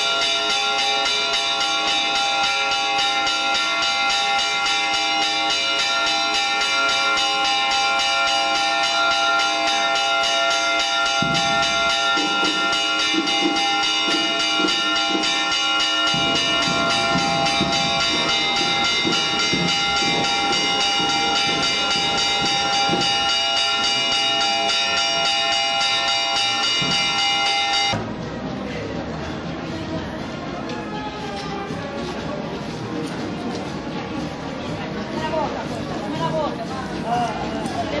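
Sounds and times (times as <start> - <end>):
church bells ringing: 0.0 - 28.0.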